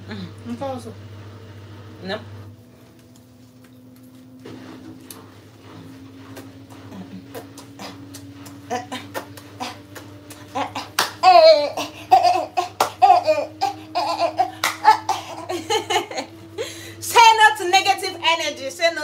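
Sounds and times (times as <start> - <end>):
faint low hum: 0.0 - 19.0
woman laughing: 8.7 - 17.0.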